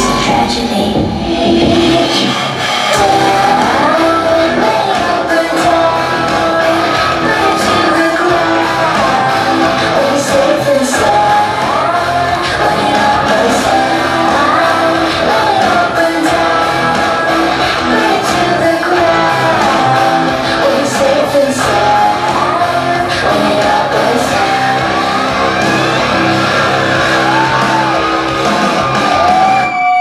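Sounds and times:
song over a sound system: 0.0 - 30.0.

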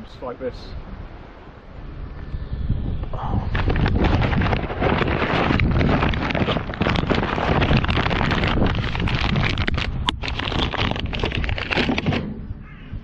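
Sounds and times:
wind buffeting microphone: 0.0 - 13.0
plastic bag crinkling: 3.4 - 12.2.

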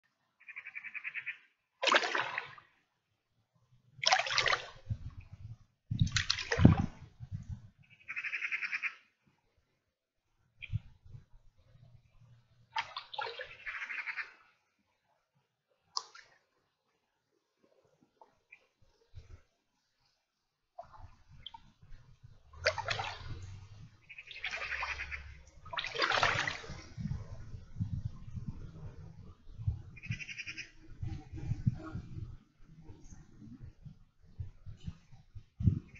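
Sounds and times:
water splashing from wading: 1.8 - 2.8, 4.0 - 5.2, 5.9 - 7.2, 12.7 - 14.4, 16.0 - 16.5, 20.8 - 27.6.

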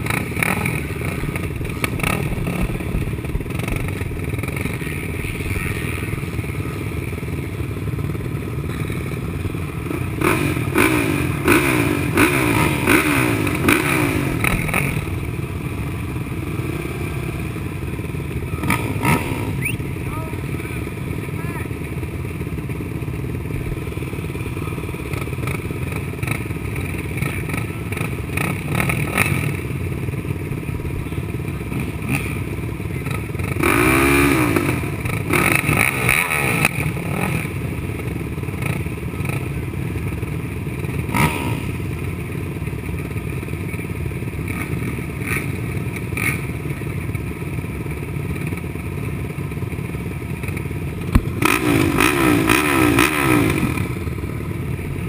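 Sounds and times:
engine revving: 0.0 - 6.8, 9.8 - 15.4, 18.4 - 20.8, 24.8 - 29.8, 31.6 - 37.8, 40.9 - 41.9, 44.4 - 46.5, 51.0 - 54.3
quad engines idling: 0.0 - 55.0.

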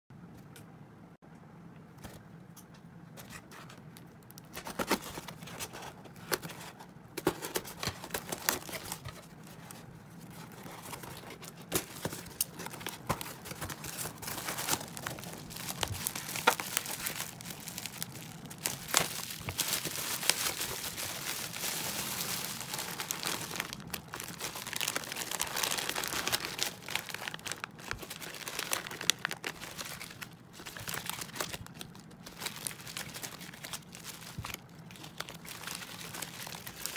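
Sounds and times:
plastic crinkling and rustling: 3.2 - 36.9
cardboard box tearing open: 18.6 - 27.6.

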